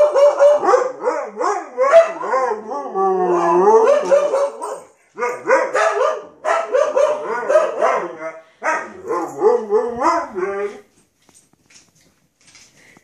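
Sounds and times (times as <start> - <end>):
dog howling: 0.0 - 4.6.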